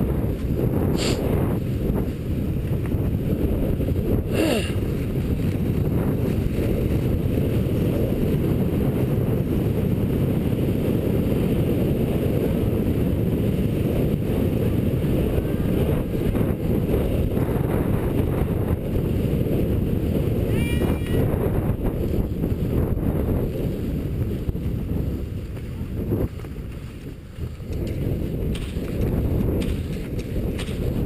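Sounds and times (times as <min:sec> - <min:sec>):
rumbling wind noise: 0:00.0 - 0:31.0
skis running in grooves: 0:00.1 - 0:04.2, 0:04.8 - 0:10.2, 0:21.5 - 0:31.0.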